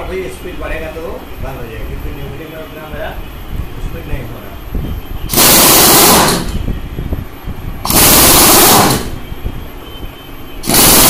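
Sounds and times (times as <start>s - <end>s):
pneumatic impact gun bursts: 5.3s - 6.7s, 7.8s - 9.3s, 10.6s - 11.0s.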